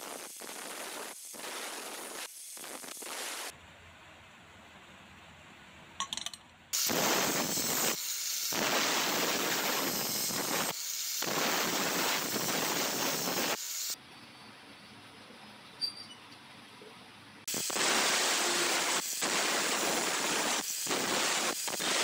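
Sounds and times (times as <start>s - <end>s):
angle grinder cutting steel: 6.8s - 14.0s, 17.5s - 22.0s.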